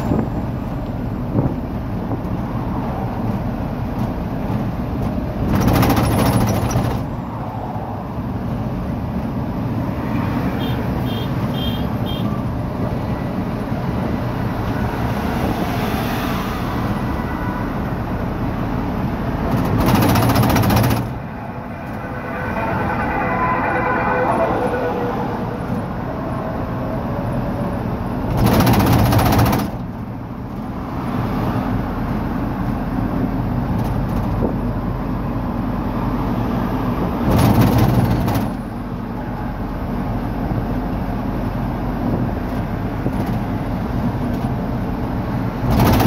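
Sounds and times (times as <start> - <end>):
engine and road noise in cab: 0.0 - 46.0.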